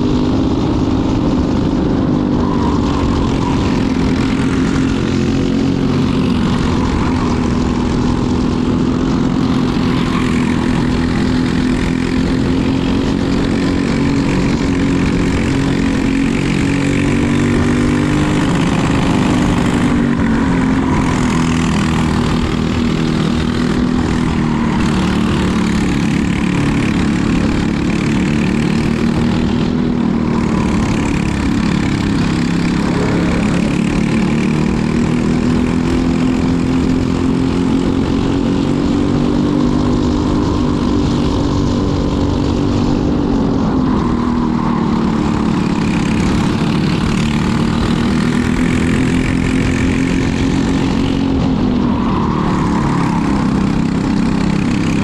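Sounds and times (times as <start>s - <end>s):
racing kart engine revving: 0.0s - 55.0s.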